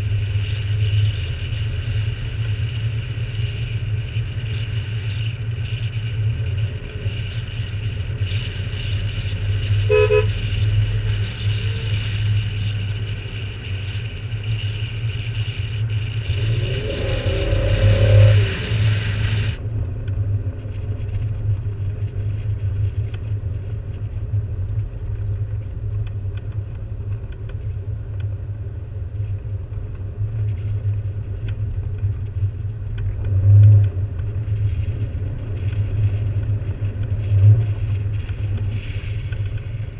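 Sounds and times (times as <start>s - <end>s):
car engine drone: 0.0s - 39.9s
car horn toot: 9.9s - 10.4s.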